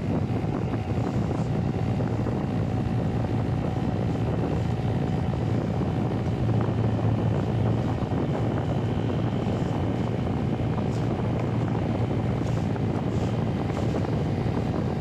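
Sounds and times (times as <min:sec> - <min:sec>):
model plane motor whine: 0:00.0 - 0:15.0
wind rushing on microphone: 0:00.0 - 0:15.0.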